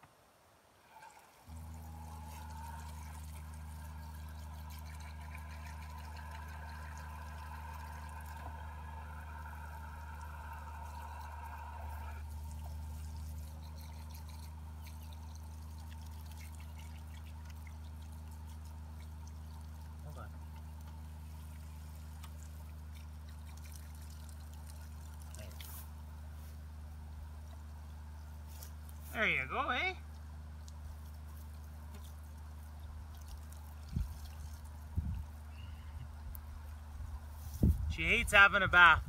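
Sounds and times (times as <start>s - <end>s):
low mechanical hum: 0.0s - 39.0s
water pouring over dog's coat: 0.9s - 26.1s, 30.6s - 35.5s.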